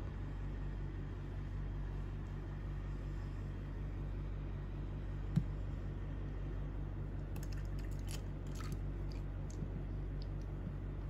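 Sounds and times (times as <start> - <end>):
steady low hum: 0.0 - 11.0
tea pouring: 7.4 - 9.3.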